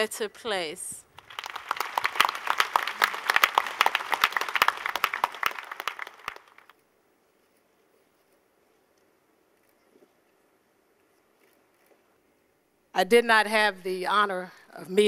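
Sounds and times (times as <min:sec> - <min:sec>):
audience applauding: 0:01.2 - 0:06.7.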